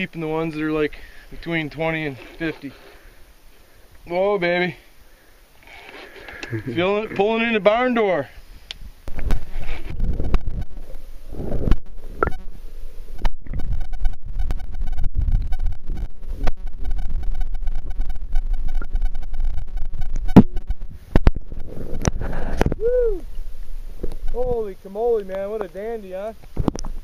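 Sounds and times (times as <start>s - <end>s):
low rumble: 8.9s - 24.8s.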